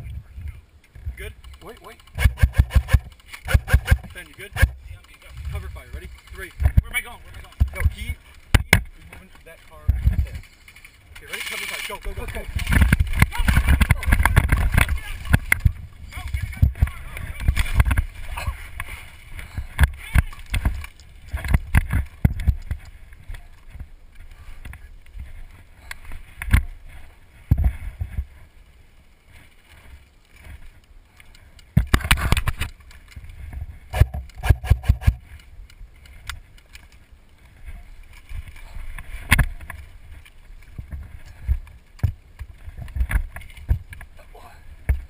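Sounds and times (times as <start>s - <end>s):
rustling through grass: 0.4s - 45.0s
airsoft gun bursts: 1.4s - 5.2s.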